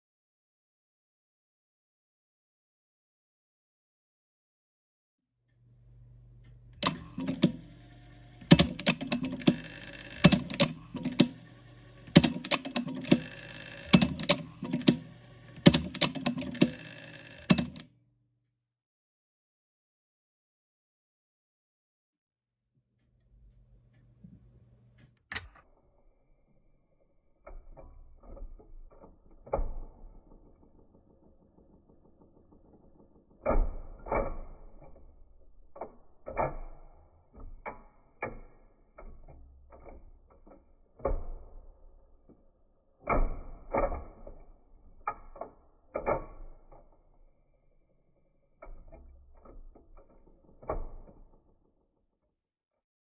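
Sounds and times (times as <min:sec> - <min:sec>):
slowed mechanical clicks and clunks: 0:05.5 - 0:18.0, 0:22.9 - 0:51.8.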